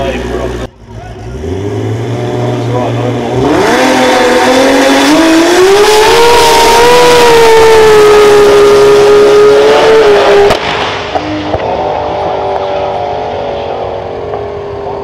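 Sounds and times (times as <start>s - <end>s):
drag car engine at full throttle: 0.0s - 15.0s.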